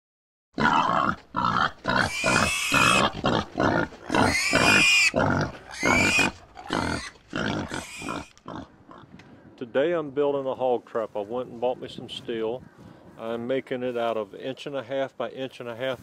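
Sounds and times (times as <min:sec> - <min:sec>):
hog squealing: 0:00.6 - 0:08.3
hog grunting: 0:00.6 - 0:09.0.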